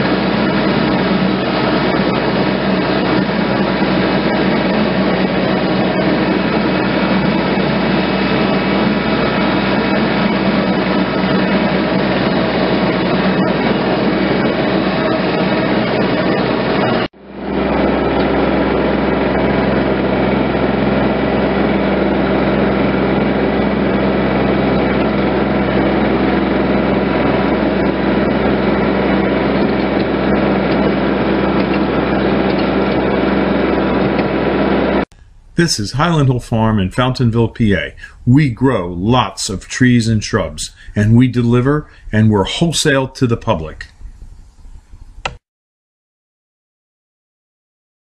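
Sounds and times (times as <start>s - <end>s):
tractor engine running: 0.0s - 38.2s.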